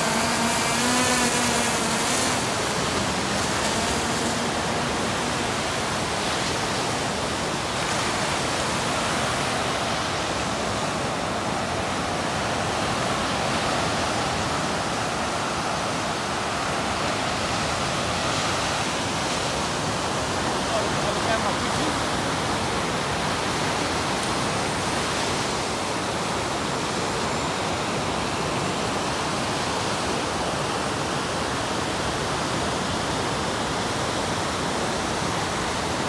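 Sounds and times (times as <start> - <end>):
drone rotors whining: 0.0 - 7.4
surf breaking on a sandy beach: 0.0 - 36.0.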